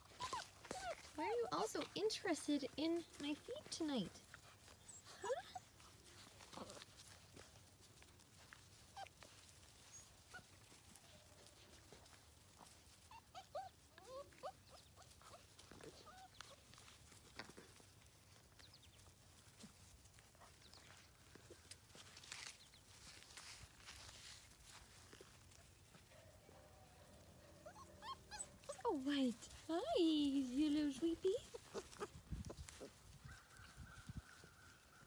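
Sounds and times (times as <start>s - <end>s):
puppies squeaking and yelping: 0.0s - 1.6s, 3.0s - 7.5s, 8.4s - 11.6s, 12.8s - 17.0s, 27.4s - 29.8s, 30.5s - 34.5s.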